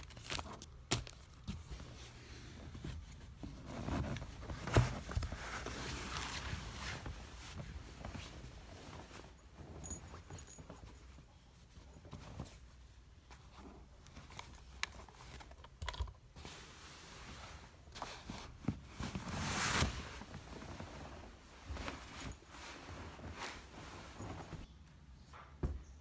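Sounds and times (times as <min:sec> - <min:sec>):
rustling scrape: 0:16.4 - 0:24.7.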